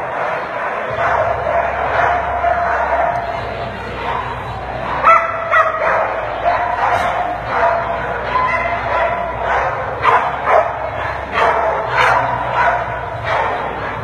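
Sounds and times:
dogs barking and yipping: 0.0 - 14.0.

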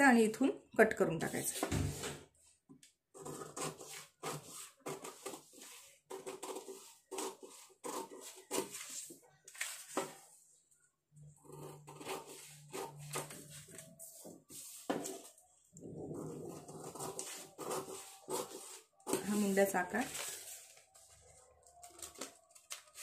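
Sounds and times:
paper rustling: 3.7 - 10.4, 16.2 - 23.0.

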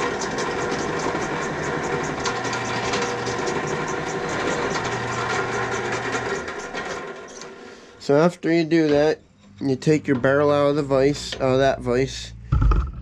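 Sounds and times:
drill press motor humming: 0.0 - 8.0.

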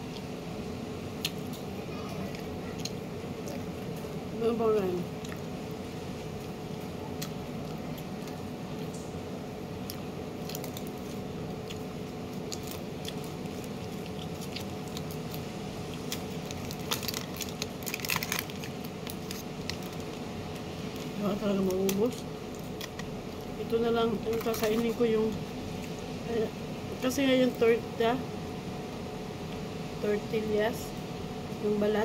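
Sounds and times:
foil wrapper crinkling: 9.9 - 23.5, 24.1 - 25.1.

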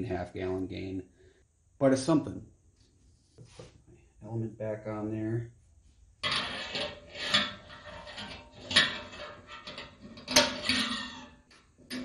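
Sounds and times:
metal clanks and scrapes: 6.2 - 12.0.

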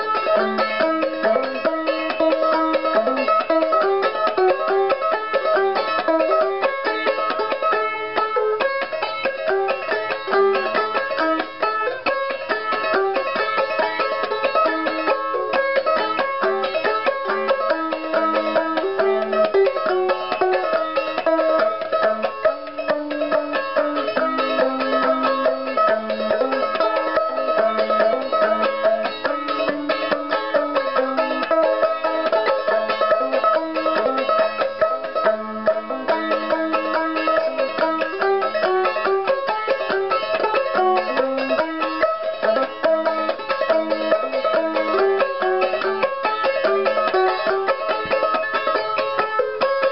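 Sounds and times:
banjo ukulele playing: 0.0 - 49.9.

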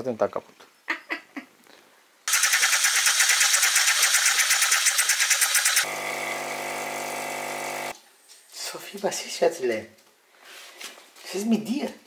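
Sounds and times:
coffee machine frothing milk: 5.8 - 7.9.

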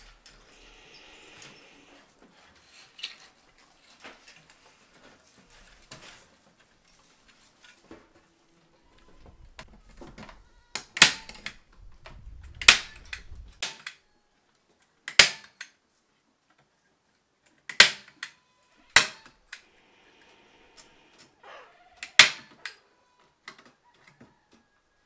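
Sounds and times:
wire mesh rustling: 0.0 - 13.9
staple gun snaps: 15.1 - 15.7, 17.7 - 18.3, 22.0 - 22.6.

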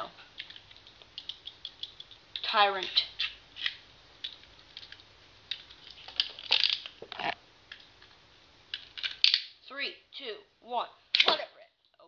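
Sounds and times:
plastic parts clicking and clattering: 3.2 - 7.1.

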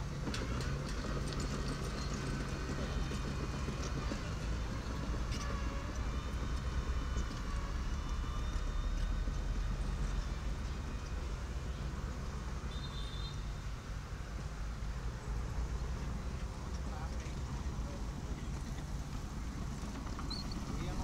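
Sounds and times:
diesel engine running: 0.0 - 21.0
faint machine squeals: 3.9 - 13.8, 20.2 - 21.0.

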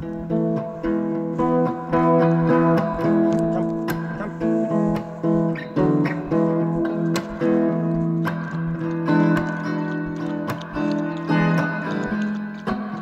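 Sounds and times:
acoustic guitar strummed chords: 0.0 - 13.0.

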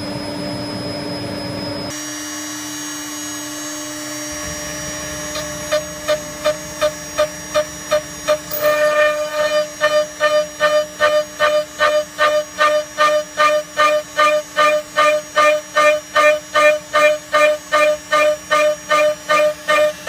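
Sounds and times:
cnc spindle whine: 0.0 - 20.0
end mill cutting steel buzz: 0.0 - 20.0.

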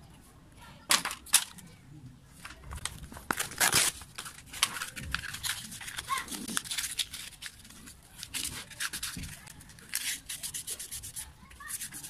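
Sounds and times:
paper crinkling and rustling: 2.4 - 12.0
sandpaper rubbing on metal: 9.9 - 12.0.

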